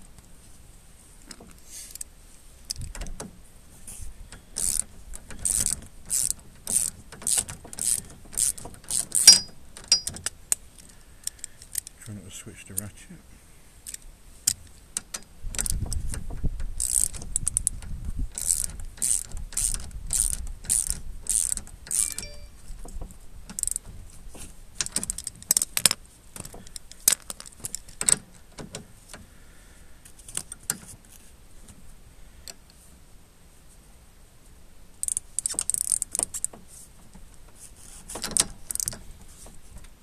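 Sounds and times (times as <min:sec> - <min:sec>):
socket ratchet ratcheting: 0:04.6 - 0:10.4, 0:16.8 - 0:22.4, 0:23.5 - 0:23.8, 0:35.0 - 0:36.5, 0:38.2 - 0:39.0.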